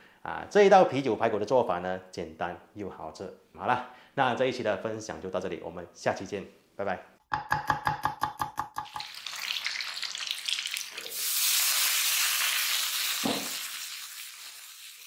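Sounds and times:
food sizzling in wok: 8.9s - 15.0s.

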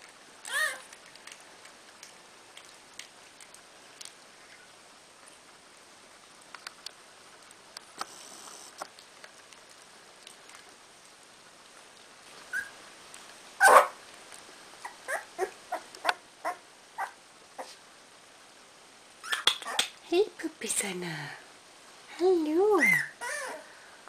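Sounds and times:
faint rustles and clicks: 0.0s - 16.2s
puppies whimpering and squeaking: 0.5s - 0.9s, 12.5s - 12.8s, 14.8s - 17.2s, 22.8s - 23.6s.

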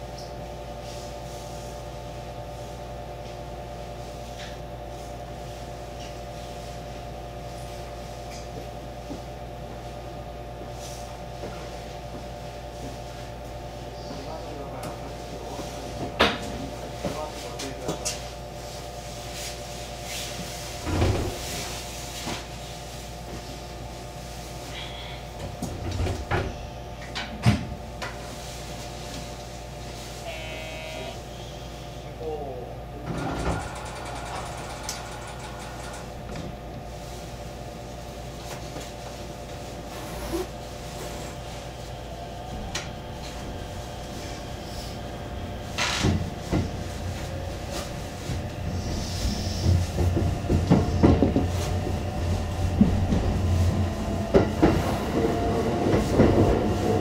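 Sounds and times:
train electrical hum: 0.0s - 57.0s
knocks and clunks in train cab: 25.4s - 28.2s, 33.0s - 36.8s, 45.6s - 57.0s.

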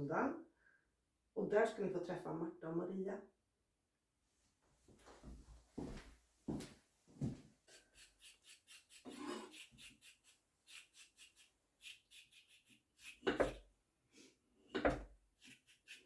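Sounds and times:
carrot being scraped: 7.7s - 13.6s, 14.8s - 16.0s
knife cutting on table: 7.8s - 13.6s, 14.7s - 16.0s.

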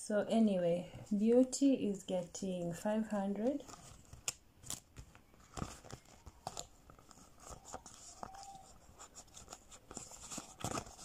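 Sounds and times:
banknotes and plastic crinkling: 3.1s - 11.0s.

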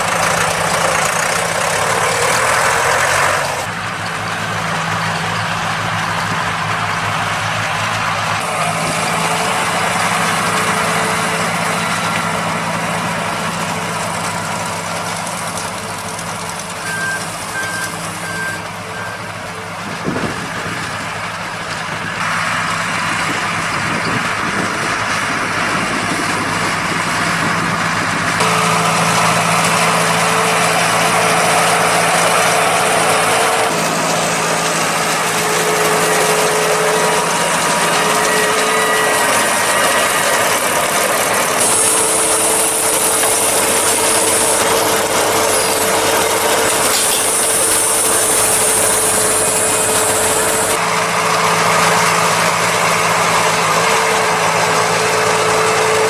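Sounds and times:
tractor diesel engines under load: 0.0s - 56.0s
short high beeps: 16.8s - 19.3s.

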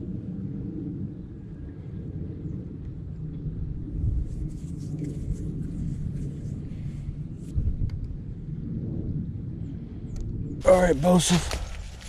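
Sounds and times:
wind buffeting microphone: 0.0s - 12.0s
faint crackling ticks and rustles: 4.3s - 6.6s.

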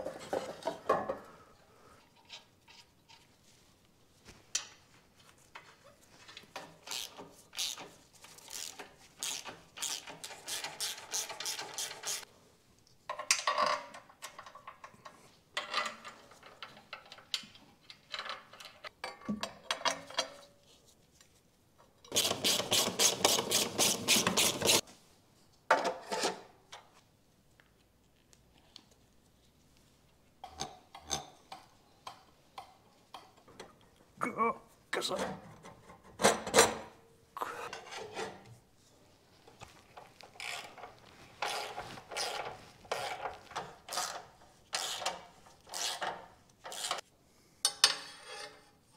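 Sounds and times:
ratchet wrench clicking: 6.9s - 7.8s, 8.4s - 12.3s.

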